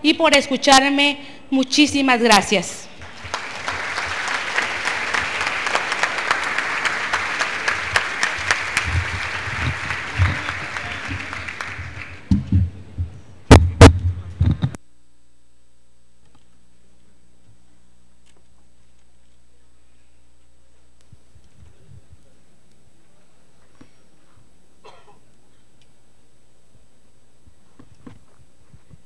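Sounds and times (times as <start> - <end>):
audience applauding: 3.0 - 12.3
loud thumps: 12.2 - 14.8.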